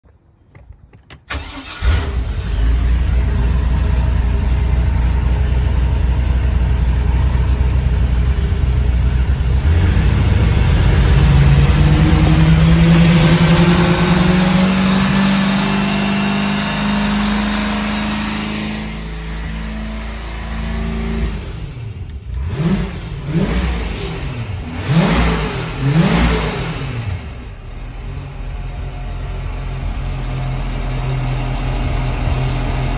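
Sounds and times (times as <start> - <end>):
boat engine starting and revving: 1.2 - 5.8, 8.1 - 28.6.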